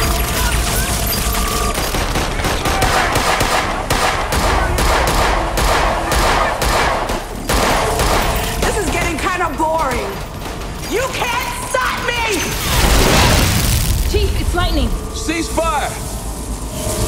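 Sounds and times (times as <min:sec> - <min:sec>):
rapid handgun fire: 0:00.0 - 0:09.3.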